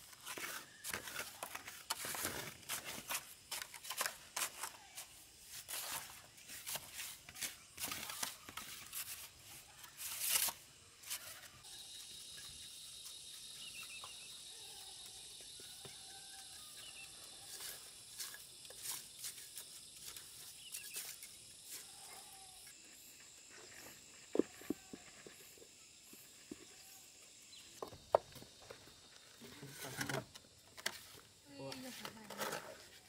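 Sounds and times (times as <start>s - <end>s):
high-pitched insect drone: 11.4s - 30.5s.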